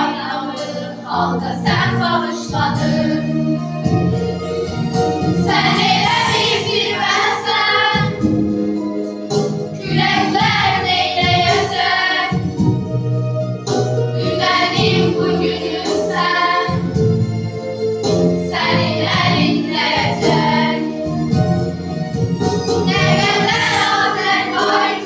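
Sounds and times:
children's choir singing: 0.0s - 3.4s, 5.4s - 8.5s, 9.8s - 12.6s, 14.2s - 17.0s, 18.4s - 21.1s, 22.9s - 25.0s
instrumental accompaniment: 0.0s - 25.0s.

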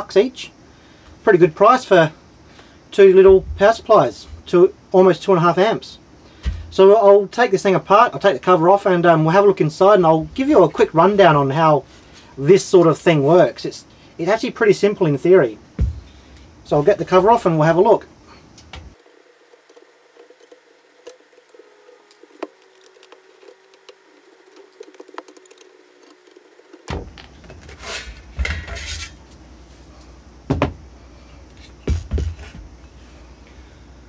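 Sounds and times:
metal cover clunks and rattles: 26.9s - 29.1s.

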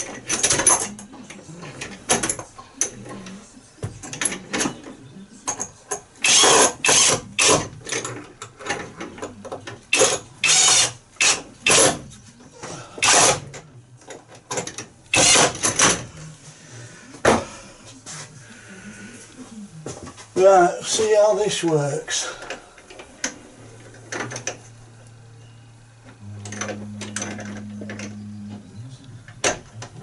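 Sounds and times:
power driver fastening bracket: 14.6s - 16.0s.

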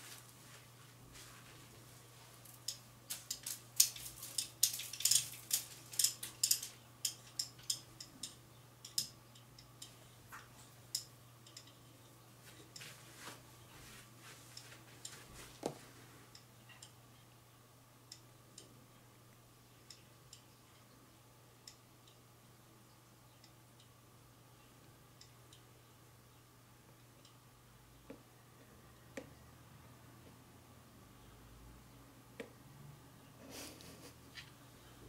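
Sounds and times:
faint steady hum: 0.0s - 35.0s
light clicks and ticks: 2.4s - 12.9s.

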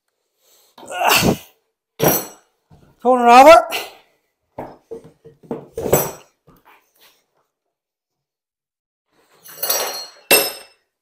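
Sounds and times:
steel tools clinking: 9.4s - 10.9s.

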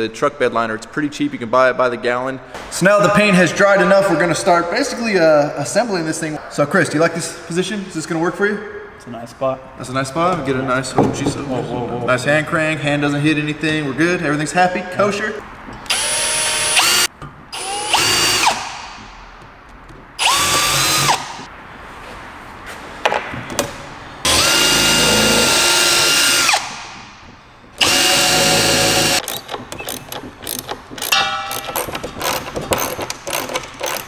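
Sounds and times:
cordless drill whine: 15.9s - 18.6s, 20.2s - 21.4s, 24.3s - 26.7s, 27.8s - 29.2s
clicking and clattering: 29.2s - 34.0s.

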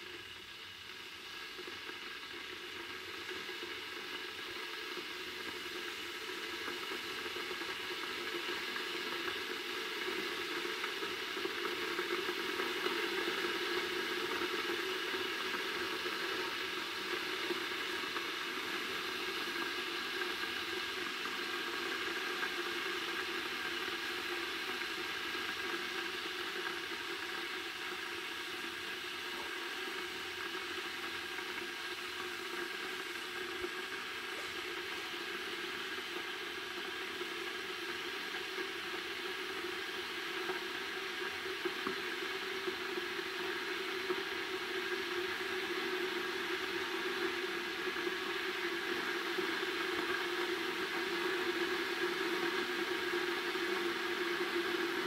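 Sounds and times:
electric kettle hissing: 0.0s - 55.0s.

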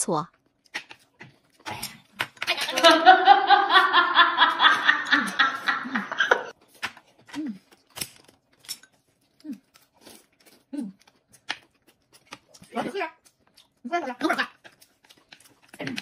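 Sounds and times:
noodles being slurped and chewed: 6.5s - 13.8s, 14.4s - 16.0s.

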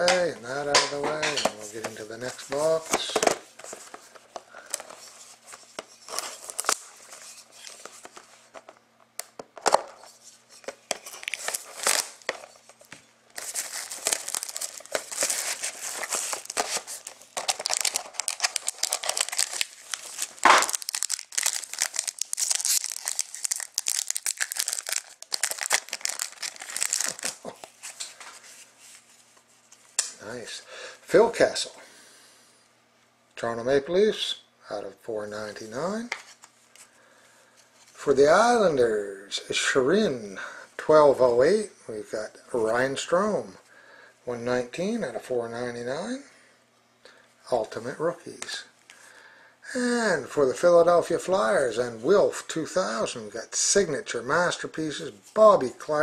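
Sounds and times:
plastic wrap tearing and crinkling: 10.9s - 12.7s, 13.3s - 28.1s
box being opened by hand: 13.4s - 27.4s.

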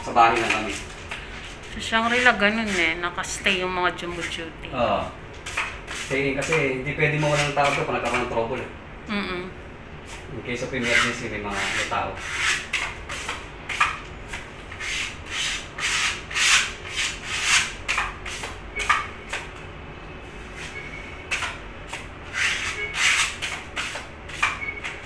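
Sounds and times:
sandpaper scratching on wall: 0.1s - 3.1s, 5.4s - 8.3s, 10.1s - 18.6s, 20.4s - 24.6s.

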